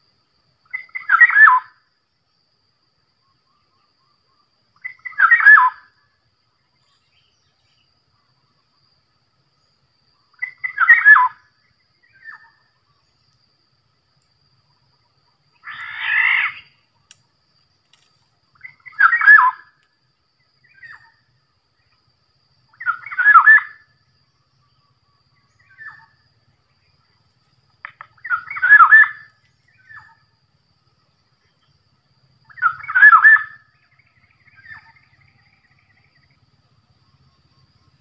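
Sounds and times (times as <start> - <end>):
faint bird chirps: 0.0 - 38.0
bird whistled call: 0.7 - 1.8, 4.8 - 5.9, 10.3 - 11.4, 15.6 - 16.7, 18.6 - 19.7, 22.7 - 23.8, 28.2 - 30.2, 32.5 - 36.0.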